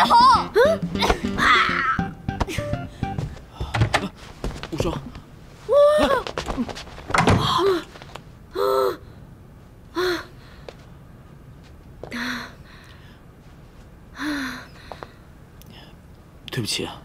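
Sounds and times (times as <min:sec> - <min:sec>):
bump and scuffle: 0:03.2 - 0:05.0, 0:05.6 - 0:08.2.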